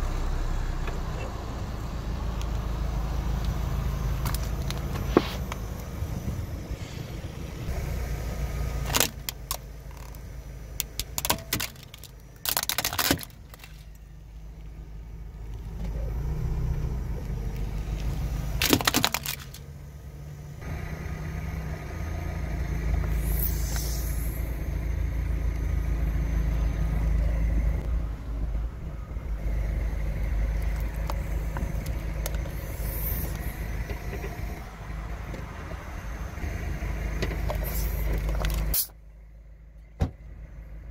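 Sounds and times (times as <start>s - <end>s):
car engine and tyre rumble: 0.0s - 40.9s
objects crushed under a tyre: 11.0s - 14.0s, 18.6s - 19.7s.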